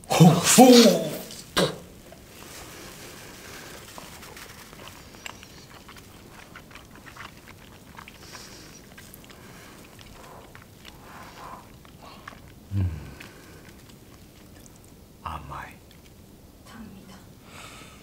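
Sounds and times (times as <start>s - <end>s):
person chewing: 0.1s - 15.2s, 15.8s - 16.3s
mouth clicks and smacks: 3.4s - 15.1s.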